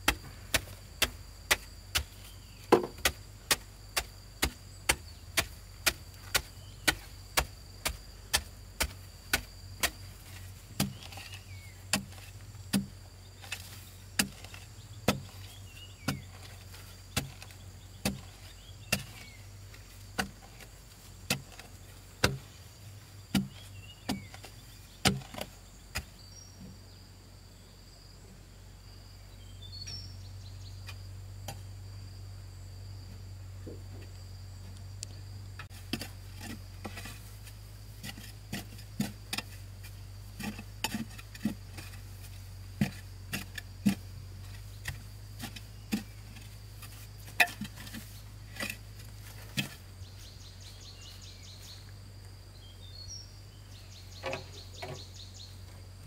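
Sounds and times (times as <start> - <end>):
wooden pole tamping soil: 0.0 - 26.8, 29.6 - 31.9, 33.6 - 56.0.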